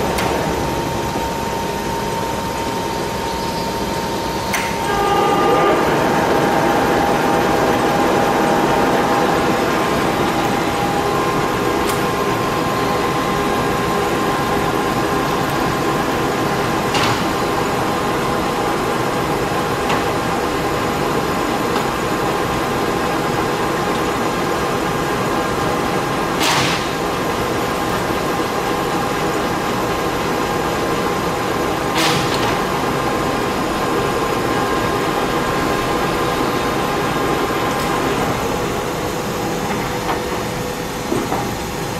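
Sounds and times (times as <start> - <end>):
lathe running with whine: 0.0 - 31.9.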